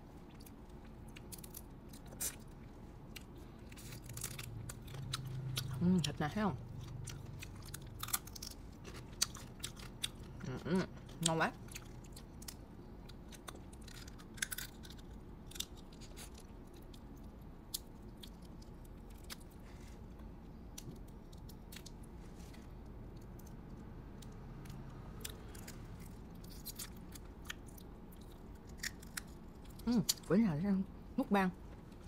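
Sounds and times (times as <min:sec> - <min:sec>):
soft chewing: 0:00.0 - 0:30.3
low steady hum: 0:00.0 - 0:32.0
crab shell cracking: 0:12.3 - 0:18.6, 0:26.4 - 0:29.7.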